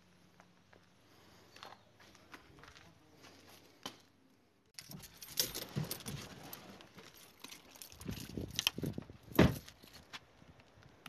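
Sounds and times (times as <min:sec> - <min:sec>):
gear rattling and jingling: 0:04.8 - 0:10.0.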